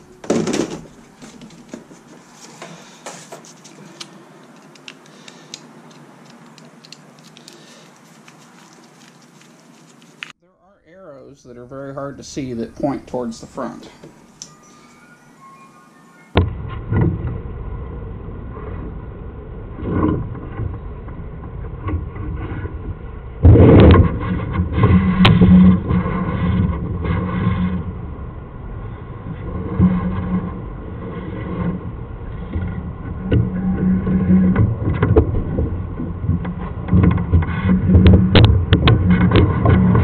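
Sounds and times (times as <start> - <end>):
low hum: 0.0 - 40.0
cable rumbling in drain pipe: 29.2 - 40.0.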